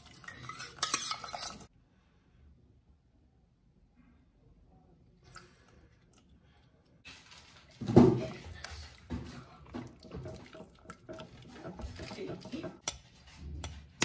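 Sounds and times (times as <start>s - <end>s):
whisk squishing and scraping in bowl: 0.0s - 1.7s, 7.1s - 14.0s.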